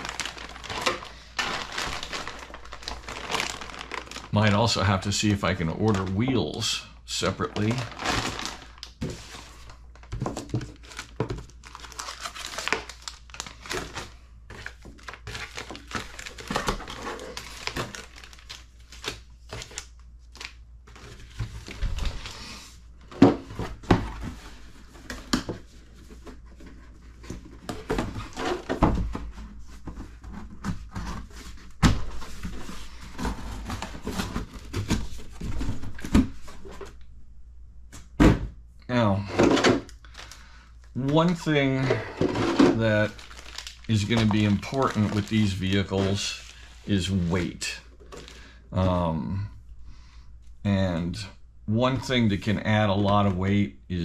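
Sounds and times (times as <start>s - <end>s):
plastic bags crinkling: 0.0s - 22.4s, 39.5s - 48.5s.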